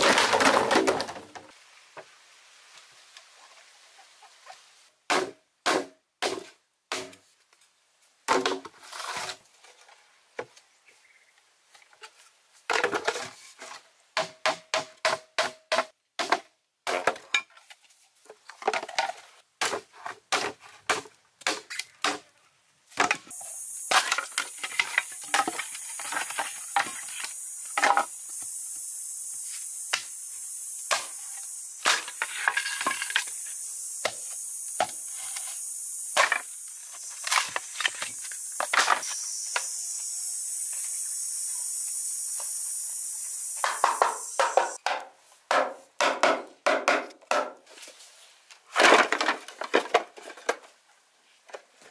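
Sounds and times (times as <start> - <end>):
machete chopping bamboo: 5.1 - 7.2, 14.2 - 17.2, 19.6 - 22.2
high-pitched hiss: 23.0 - 44.8.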